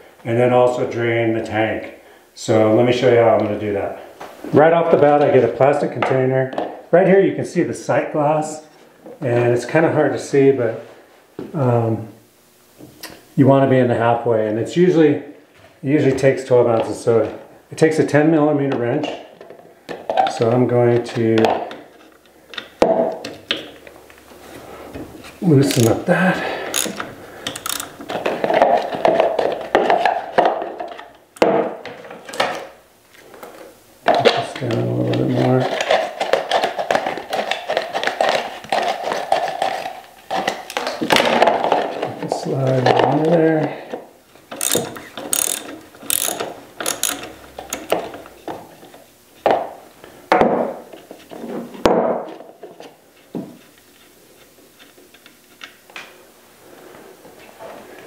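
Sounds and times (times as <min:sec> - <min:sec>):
tool handling sounds: 0:20.2 - 0:49.7
ratchet wrench clicking: 0:25.6 - 0:26.0, 0:26.7 - 0:28.0, 0:44.6 - 0:48.0
plastic cup on plywood floor: 0:35.4 - 0:43.2.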